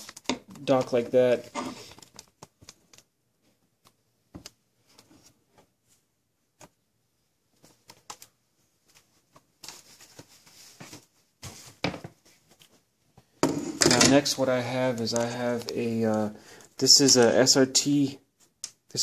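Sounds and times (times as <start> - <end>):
rustling: 7.5 - 12.9.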